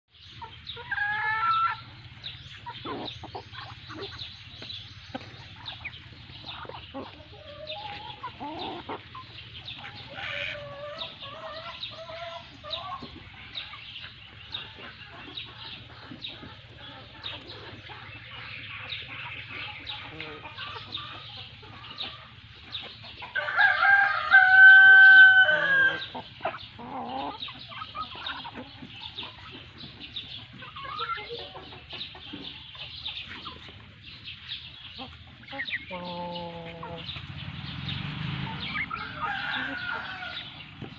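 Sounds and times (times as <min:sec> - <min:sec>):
chickens clucking: 0:00.1 - 0:40.9
rooster crowing: 0:23.4 - 0:26.1, 0:38.9 - 0:40.6.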